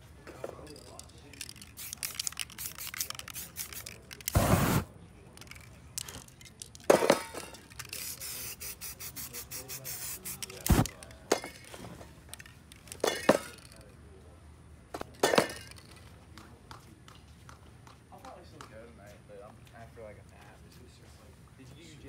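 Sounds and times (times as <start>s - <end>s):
spray can hissing: 1.5s - 4.9s, 7.8s - 10.9s.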